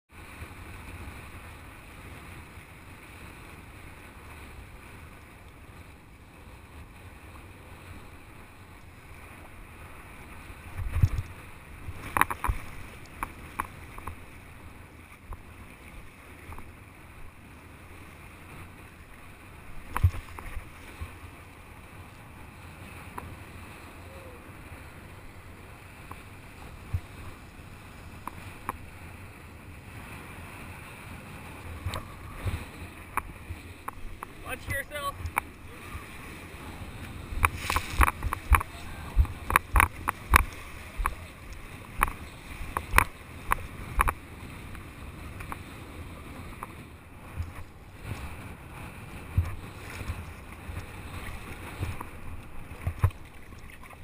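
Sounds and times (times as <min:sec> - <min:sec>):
wind rumble on microphone: 0:00.1 - 0:54.0
sharp knocks and clicks: 0:12.1 - 0:12.6, 0:37.4 - 0:41.2, 0:42.8 - 0:44.2.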